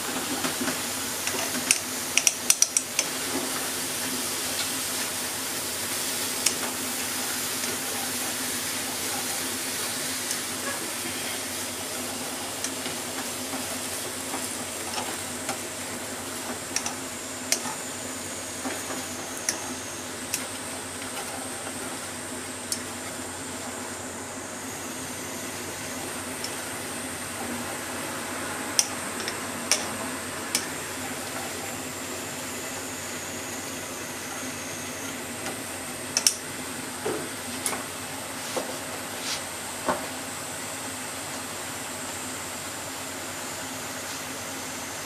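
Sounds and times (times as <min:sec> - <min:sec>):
bacon sizzling in a pot: 0:00.0 - 0:23.3
chopsticks tapping against a pot: 0:01.7 - 0:03.1.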